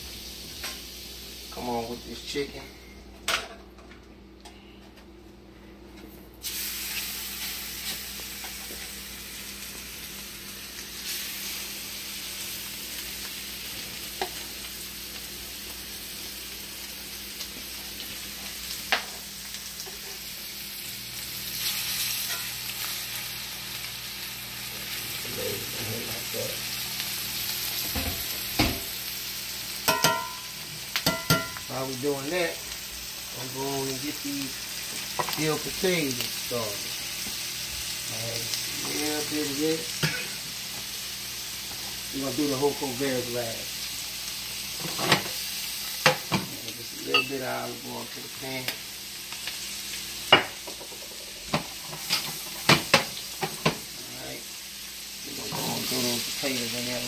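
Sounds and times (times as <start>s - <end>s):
chicken sizzling in a pan: 0.0s - 2.8s, 6.4s - 57.0s.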